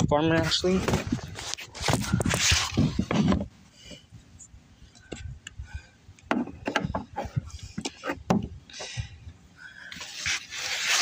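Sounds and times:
knocks and rubbing: 1.8s - 3.5s, 6.3s - 8.6s.

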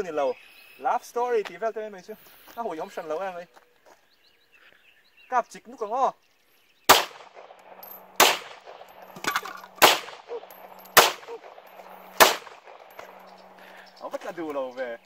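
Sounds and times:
handgun shots: 6.9s - 13.3s.

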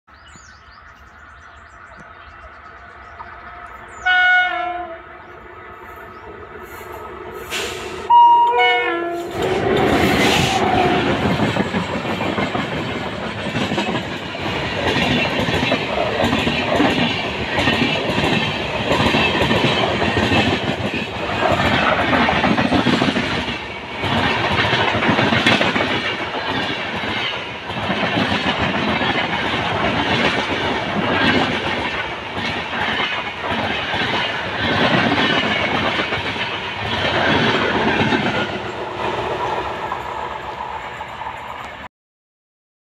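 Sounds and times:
train rumble: 0.3s - 41.9s
train horn blasts: 4.0s - 5.4s, 7.5s - 11.3s
train wheels clickety-clack: 9.2s - 41.9s.

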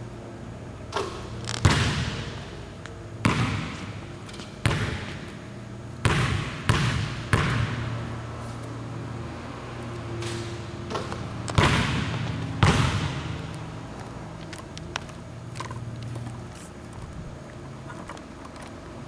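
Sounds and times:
steady low hum: 0.0s - 19.0s
basketball bouncing on wooden floor: 1.0s - 2.4s, 3.2s - 5.4s, 6.0s - 8.0s, 10.2s - 13.7s.

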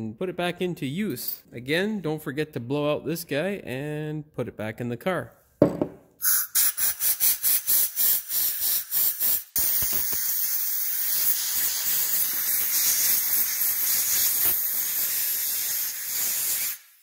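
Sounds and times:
compressed air blow gun blasting: 6.2s - 17.0s.

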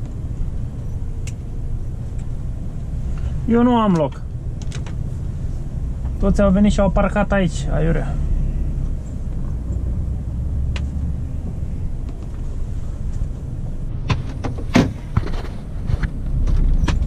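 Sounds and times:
truck engine rumbling: 0.0s - 17.0s
sharp clicks and knocks: 3.9s - 5.0s, 14.0s - 17.0s.

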